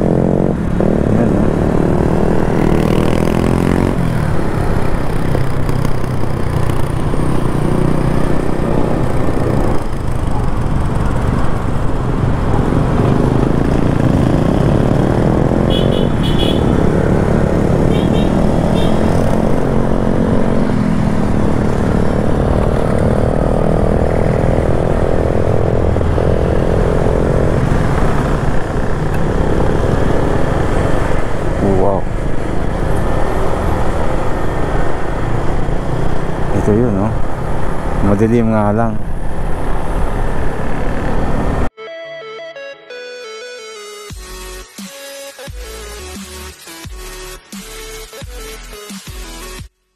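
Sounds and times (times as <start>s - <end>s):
motorcycle engine running: 0.0s - 31.8s
wind and road noise: 0.0s - 41.8s.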